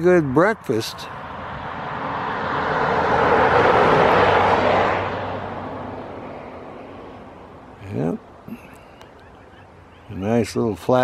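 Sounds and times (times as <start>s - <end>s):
vehicle passing by: 0.0s - 8.0s.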